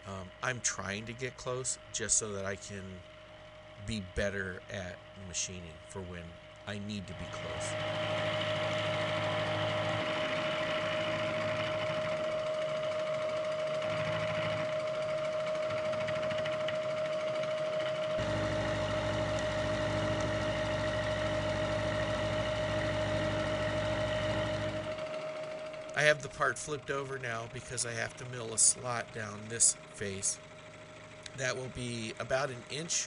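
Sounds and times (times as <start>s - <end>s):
deep steady hum: 0.0s - 33.0s
milling machine cutting steel: 7.0s - 30.5s, 31.2s - 33.0s.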